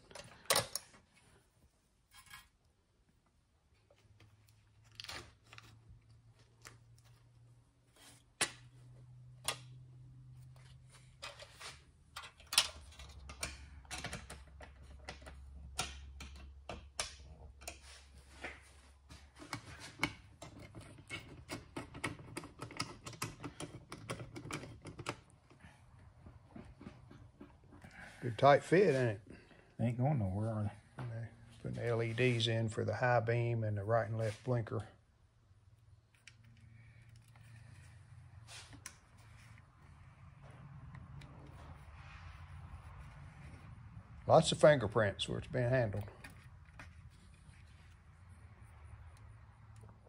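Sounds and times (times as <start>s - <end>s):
small metallic clicks and rattles: 19.4s - 25.6s.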